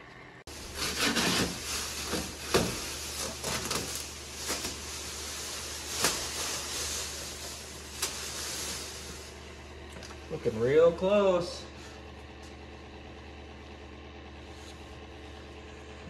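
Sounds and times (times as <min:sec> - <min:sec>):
steady low hum: 0:00.0 - 0:16.0
plastic sheeting crinkling: 0:00.5 - 0:10.0.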